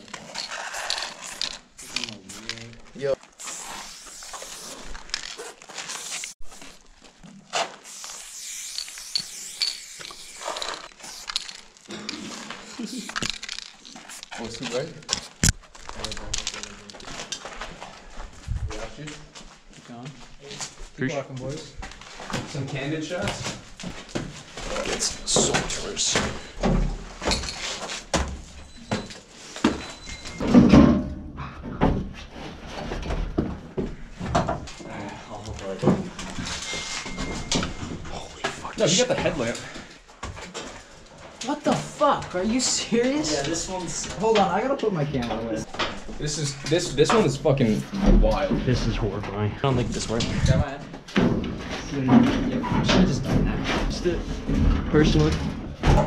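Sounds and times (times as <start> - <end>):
spray-paint can hissing: 3.4 - 5.0, 6.0 - 6.4, 7.8 - 11.7.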